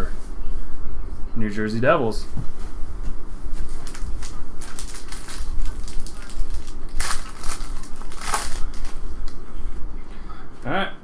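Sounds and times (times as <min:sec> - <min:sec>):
foil wrapper crinkling and tearing: 0:03.8 - 0:09.4.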